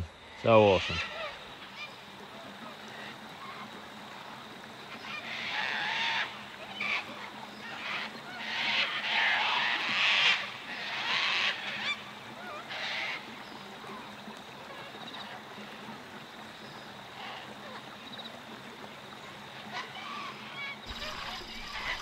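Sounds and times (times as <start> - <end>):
harsh bird calls: 0.0 - 2.1, 19.8 - 22.0.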